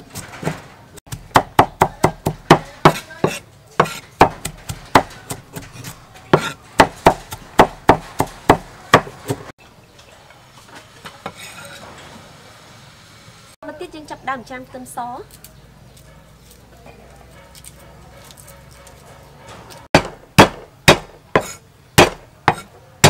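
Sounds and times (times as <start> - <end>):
cleaver chopping on wooden board: 1.1 - 9.4, 19.9 - 22.7.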